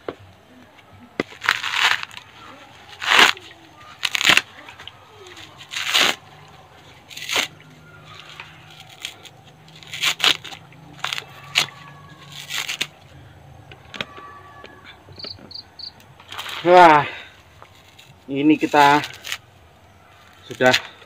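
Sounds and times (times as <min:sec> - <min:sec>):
coconut husk ripping and crunching: 0:00.4 - 0:14.9, 0:15.9 - 0:21.0.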